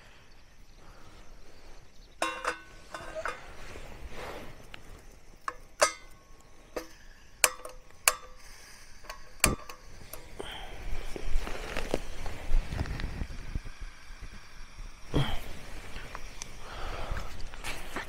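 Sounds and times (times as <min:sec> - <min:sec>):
metal pot and lid clinking: 0:02.2 - 0:03.8, 0:05.4 - 0:09.9.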